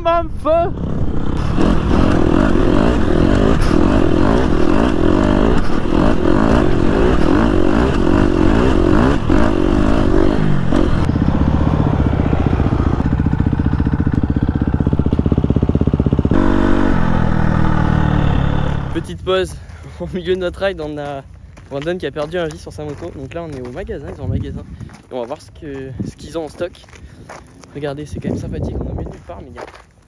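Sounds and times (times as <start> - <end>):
dirt bike engine revving: 0.7 - 19.2
wind on microphone: 28.0 - 29.5.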